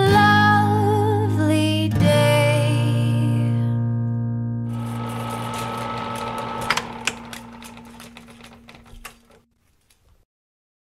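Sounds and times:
rapid clicking and crackling: 0:04.8 - 0:10.0.

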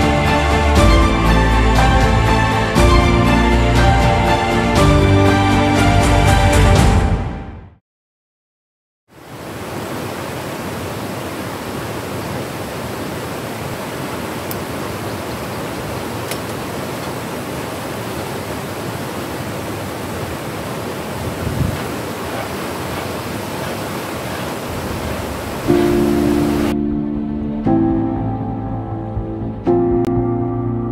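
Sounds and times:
river rapids roaring over rocks: 0:09.3 - 0:26.7.

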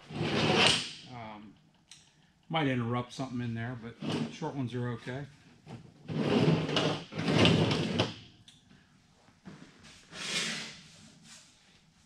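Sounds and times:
sheet metal scraping: 0:06.1 - 0:08.1.

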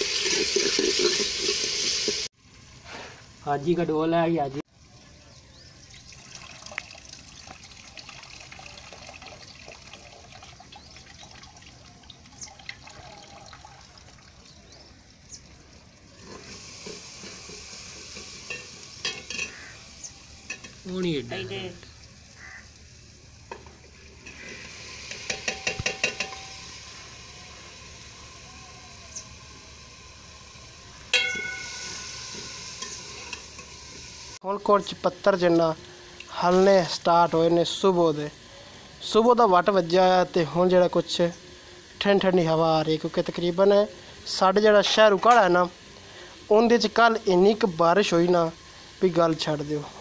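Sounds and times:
metal ladle scraping a pot: 0:00.0 - 0:02.2, 0:24.2 - 0:26.6
food sizzling in a metal pot: 0:00.0 - 0:11.3, 0:12.1 - 0:50.0
ladle clinking against pot: 0:25.1 - 0:26.6, 0:31.2 - 0:31.9.

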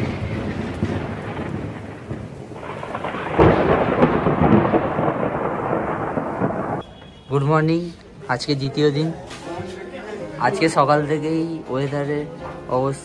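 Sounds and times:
thunder rolling: 0:00.0 - 0:06.8
rain hissing: 0:00.0 - 0:06.9.

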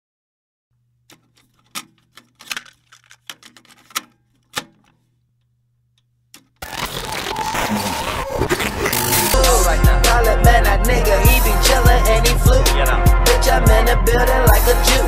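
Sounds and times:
tape mechanism clicks and clunks: 0:00.8 - 0:07.0
loud music: 0:06.6 - 0:15.0.

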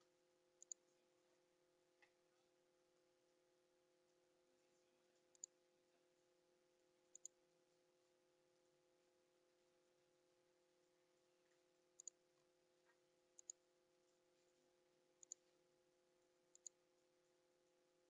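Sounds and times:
faint steady hum: 0:00.0 - 0:18.0
computer mouse clicks: 0:00.6 - 0:00.9, 0:05.2 - 0:05.6, 0:07.1 - 0:07.4, 0:12.0 - 0:12.2, 0:13.4 - 0:13.6, 0:15.2 - 0:15.5, 0:16.5 - 0:16.8.

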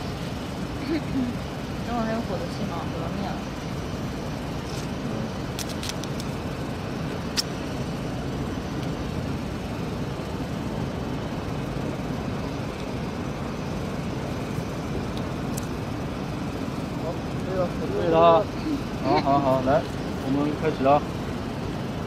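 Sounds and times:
low rumbling background noise: 0:00.0 - 0:22.0.

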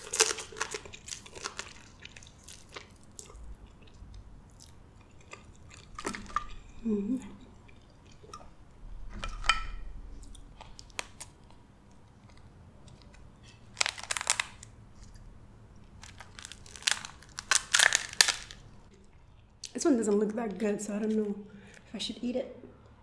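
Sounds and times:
crab shell cracking: 0:00.0 - 0:03.4, 0:10.3 - 0:18.7.

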